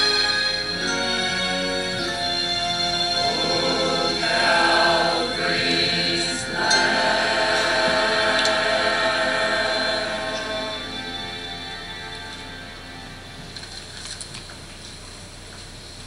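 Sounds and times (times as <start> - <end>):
church choir singing: 1.5 - 13.3.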